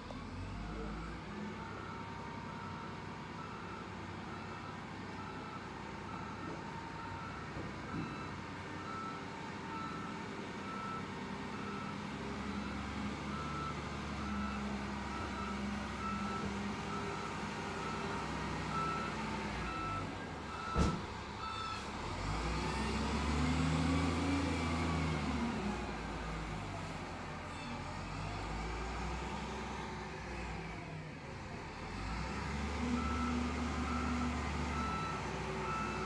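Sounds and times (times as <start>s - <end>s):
reversing alarm beeping: 12.5s - 21.8s.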